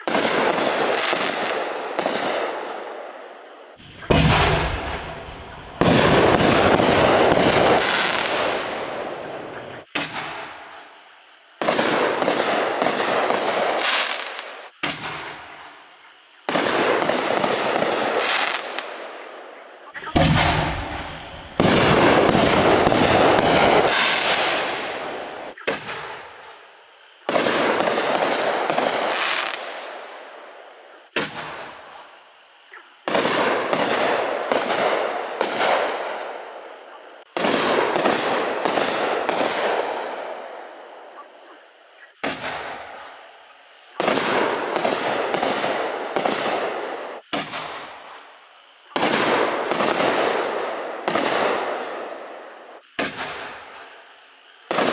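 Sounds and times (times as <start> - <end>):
fireworks bangs: 0.0 - 3.1, 3.8 - 10.8, 11.6 - 15.6, 16.5 - 19.0, 20.0 - 26.6, 27.2 - 30.1, 33.0 - 36.4, 37.3 - 41.0, 42.2 - 43.2, 43.9 - 48.0, 48.9 - 53.9
fireworks hiss: 0.0 - 54.9.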